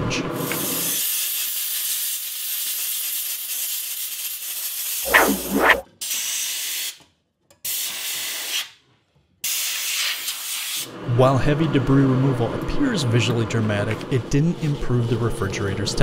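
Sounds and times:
whistling sound: 5.1 - 5.8.

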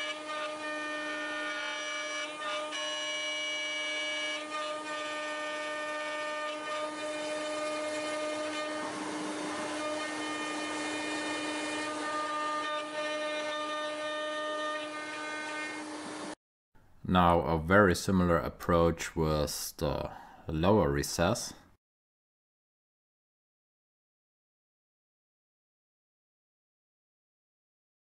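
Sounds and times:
router spindle milling whine: 0.0 - 16.4.

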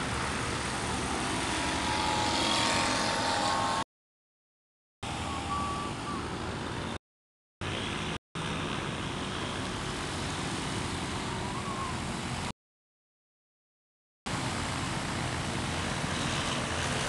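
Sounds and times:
distant light aircraft engines: 0.0 - 3.8, 5.0 - 7.0, 7.6 - 12.5, 14.3 - 17.0.

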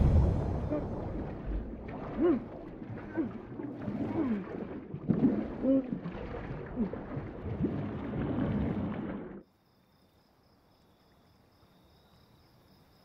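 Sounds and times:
low gliding moans: 0.0 - 4.9
underwater rumbling and bubbling: 0.0 - 9.4.

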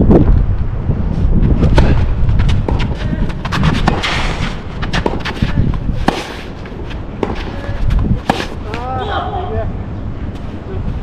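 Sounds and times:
wind rumble on microphone: 0.0 - 11.0
footsteps: 1.2 - 8.8
racket hitting tennis ball: 1.6 - 8.9
tennis ball bouncing: 1.6 - 8.9.

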